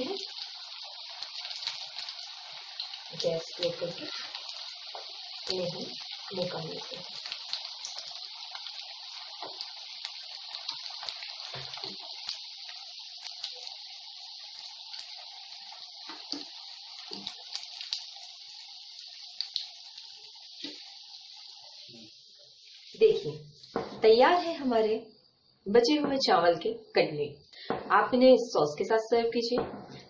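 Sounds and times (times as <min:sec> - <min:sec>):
small crackles: 0:00.0 - 0:23.8
hot oil sizzling: 0:00.0 - 0:25.2.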